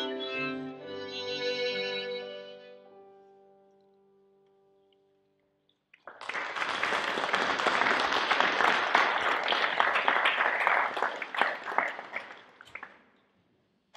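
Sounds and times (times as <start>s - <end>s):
violin and piano chord: 0.0s - 3.5s
audience applauding: 6.0s - 13.1s.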